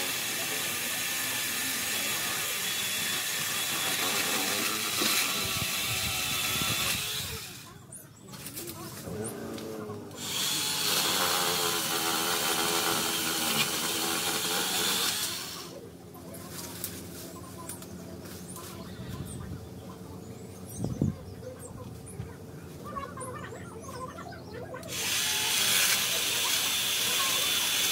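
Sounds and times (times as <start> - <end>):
electric chainsaw cutting branch: 0.0 - 7.8, 8.4 - 15.8, 24.8 - 27.9.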